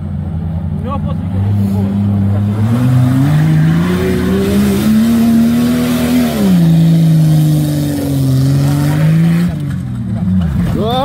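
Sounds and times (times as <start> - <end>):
engine revving hard: 1.3 - 9.7.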